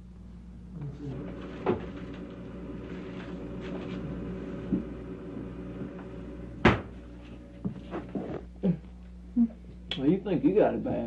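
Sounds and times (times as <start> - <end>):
steady low hum: 0.0 - 11.0
freezer door thudding shut: 6.6 - 7.0.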